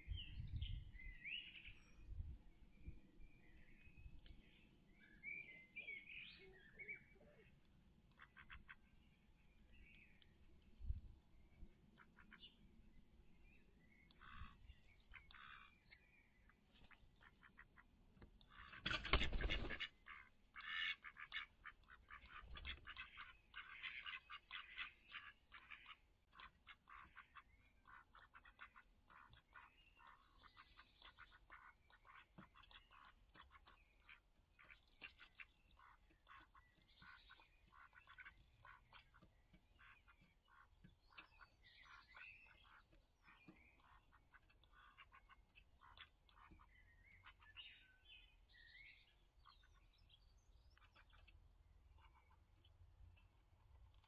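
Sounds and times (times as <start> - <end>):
duck quacking raspily: 18.5 - 38.8.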